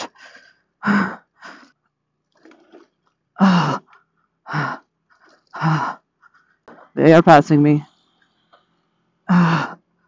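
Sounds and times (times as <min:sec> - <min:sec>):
person breathing heavily: 0:00.0 - 0:01.8, 0:03.4 - 0:06.4, 0:09.2 - 0:10.0.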